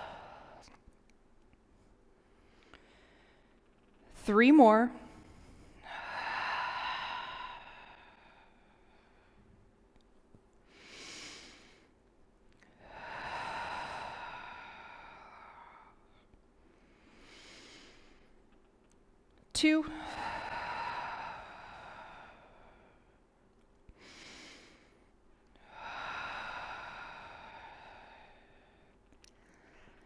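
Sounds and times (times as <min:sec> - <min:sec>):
woman breathing: 0:00.0 - 0:00.8, 0:02.1 - 0:04.1, 0:05.0 - 0:09.7, 0:10.6 - 0:18.8, 0:19.6 - 0:30.0.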